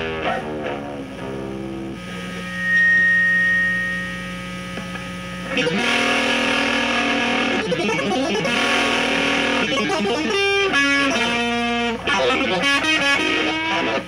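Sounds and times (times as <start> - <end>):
electric guitar with effects: 0.0 - 14.0
steady mains hum: 0.0 - 14.0
pure high tone: 2.3 - 4.9.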